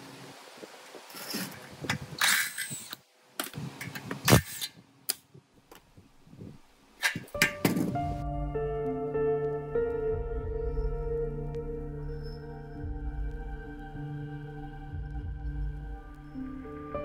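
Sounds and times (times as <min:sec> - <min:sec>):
hand tools knocking and clattering: 0:07.0 - 0:08.0.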